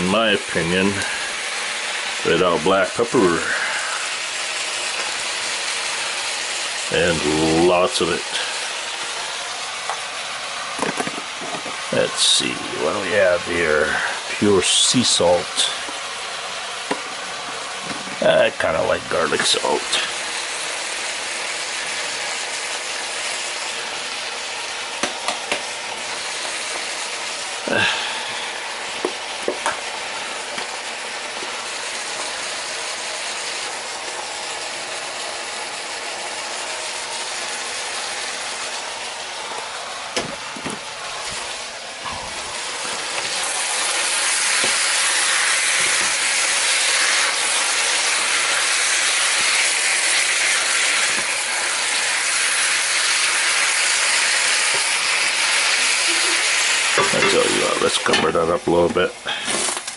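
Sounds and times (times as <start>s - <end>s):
meat sizzling in a frying pan: 0.0s - 59.9s
spatula stirring meat: 41.2s - 59.4s.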